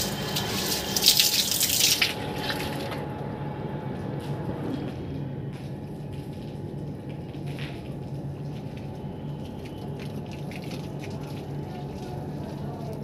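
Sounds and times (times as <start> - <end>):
water running and dripping: 0.0 - 3.0, 7.8 - 13.0
low rush and hum: 0.0 - 9.6.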